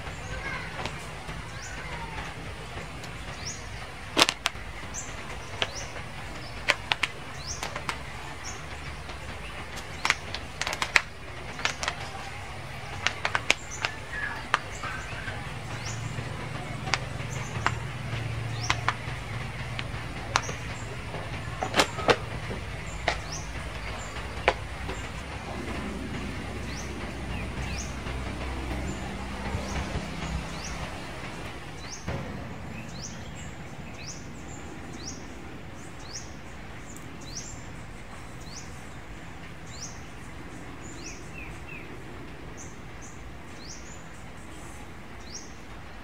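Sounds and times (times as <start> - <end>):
deep hum: 0.0 - 37.9
low rumble: 0.0 - 42.9
sharp clicks: 3.0 - 33.1
high rising chirps: 13.6 - 36.0.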